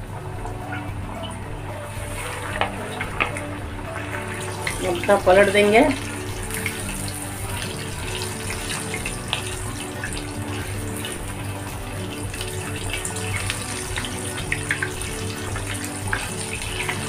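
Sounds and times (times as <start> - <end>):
chicken deep-frying in oil: 0.0 - 17.0
oil crackling and popping: 1.9 - 17.0.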